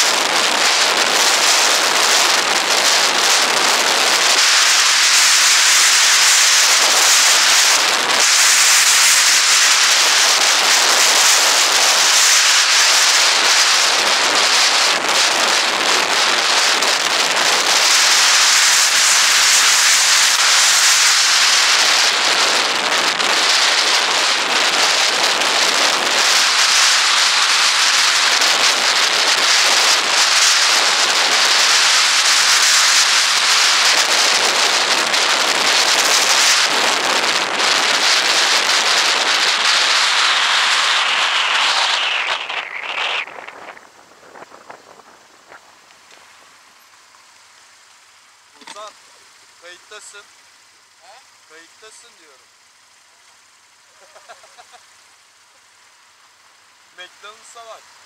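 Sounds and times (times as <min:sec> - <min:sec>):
wind rushing over microphone: 0:00.0 - 0:46.9.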